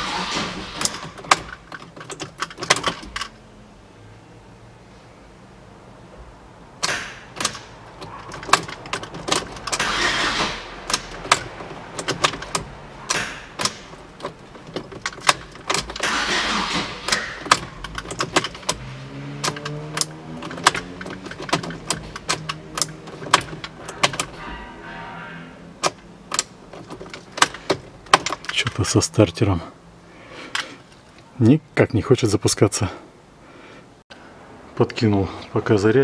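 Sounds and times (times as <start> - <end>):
starter motor cranking: 0.0 - 1.6, 9.6 - 11.4, 15.0 - 23.7
sharp clicks and knocks: 0.8 - 3.4, 6.8 - 24.7, 25.8 - 28.8.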